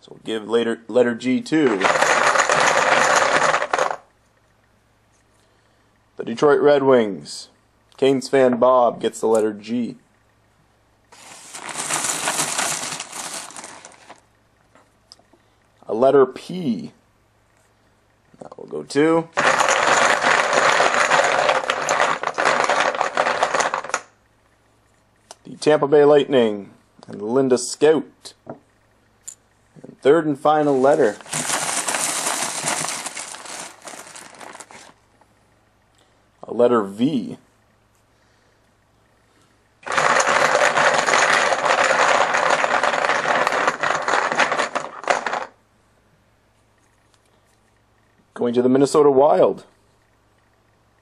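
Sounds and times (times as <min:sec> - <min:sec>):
chips clattering in a cup: 0:01.7 - 0:04.0, 0:11.2 - 0:14.2, 0:19.4 - 0:24.1, 0:30.8 - 0:34.9, 0:39.8 - 0:45.5.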